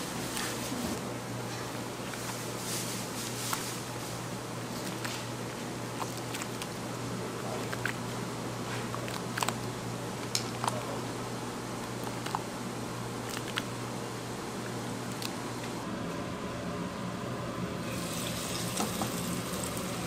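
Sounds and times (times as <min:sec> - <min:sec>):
steady background hum: 0:00.0 - 0:20.0
wet squishing of batter: 0:03.3 - 0:11.0, 0:13.2 - 0:13.8.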